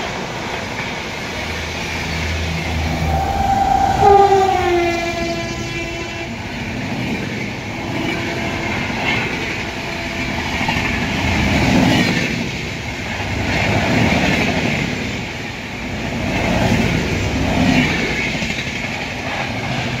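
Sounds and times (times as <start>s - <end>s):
train wheels rumbling on rail: 0.0s - 20.0s
locomotive horn: 2.2s - 6.7s, 7.7s - 11.5s.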